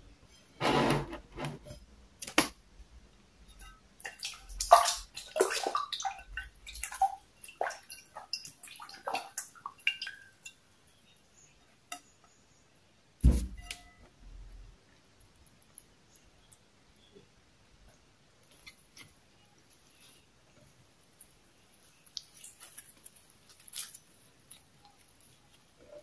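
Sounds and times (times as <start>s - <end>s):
wet slippery food noises: 3.6s - 10.6s, 18.4s - 26.0s.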